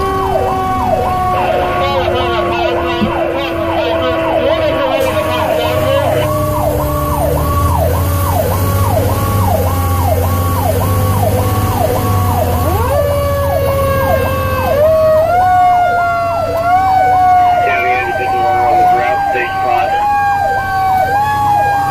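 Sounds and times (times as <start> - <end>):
electronic siren wail: 0.0 - 21.9
low engine drone: 0.0 - 21.9.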